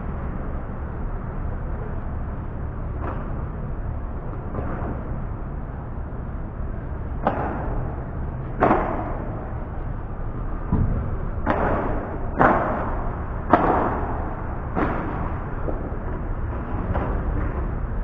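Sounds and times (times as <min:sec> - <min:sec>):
steady low rumble: 0:00.0 - 0:18.0
paddle hitting ball: 0:07.2 - 0:09.5, 0:10.6 - 0:17.2.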